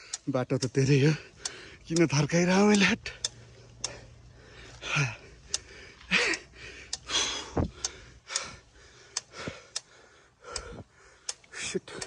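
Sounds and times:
person panting hard: 1.0s - 1.9s, 2.8s - 12.0s.

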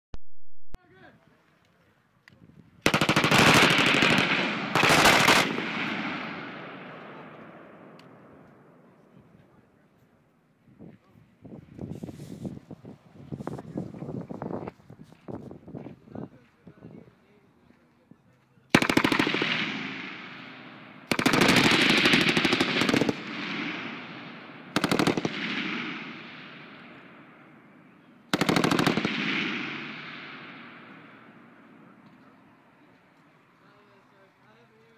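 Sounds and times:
machine gun automatic fire: 2.8s - 6.6s, 18.7s - 26.3s, 28.3s - 31.0s
gunfire echo: 2.8s - 9.0s, 18.7s - 32.1s.

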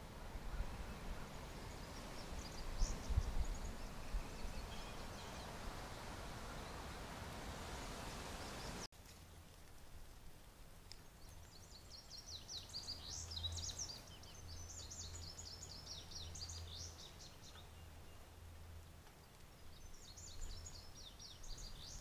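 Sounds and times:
steady hiss: 0.0s - 17.4s
faint high bird chirps: 0.5s - 7.0s.

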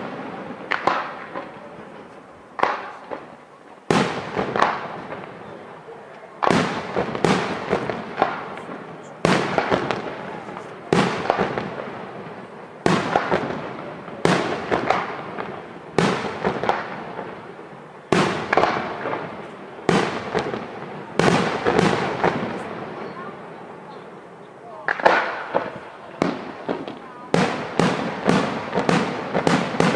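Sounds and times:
firework shells bursting: 0.0s - 5.5s, 6.1s - 23.2s, 24.8s - 29.9s
small crackling pops: 0.7s - 1.6s, 2.6s - 3.4s.

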